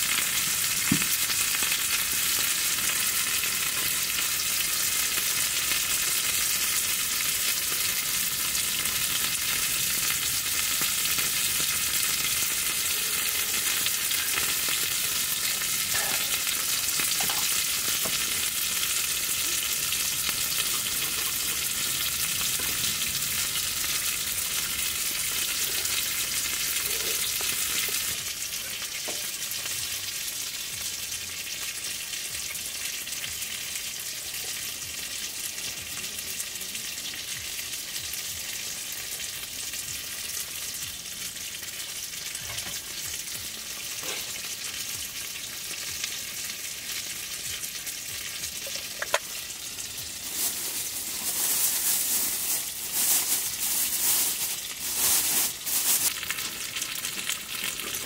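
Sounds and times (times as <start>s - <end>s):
chicken sizzling on a grill: 0.0s - 58.0s.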